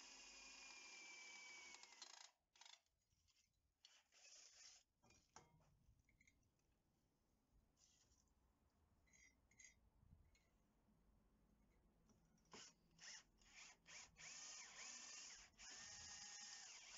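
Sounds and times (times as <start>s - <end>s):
cordless drill whining: 0.0s - 2.3s, 3.9s - 4.8s, 12.5s - 16.9s.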